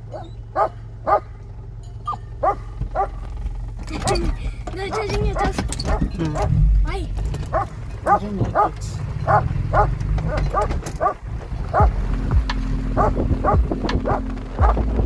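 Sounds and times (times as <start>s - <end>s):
dog barking: 0.0s - 1.3s, 2.1s - 3.2s, 4.9s - 6.5s, 7.5s - 11.9s, 13.0s - 14.8s
pickup engine humming: 0.0s - 15.0s.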